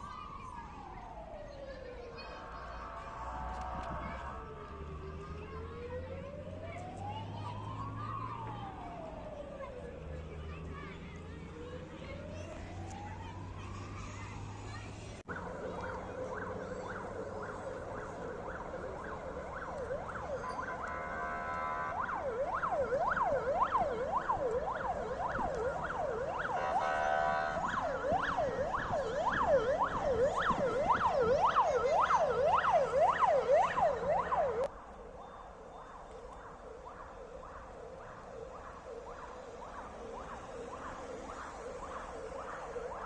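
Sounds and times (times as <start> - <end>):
ambulance siren yelping: 0.0 - 14.0, 15.2 - 43.0
buzzing horn tone: 20.8 - 22.0, 26.6 - 27.8.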